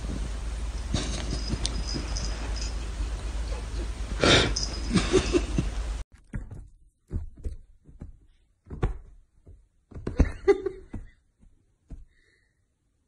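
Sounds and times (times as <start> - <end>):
kitten thumping on a bed: 6.4 - 11.1.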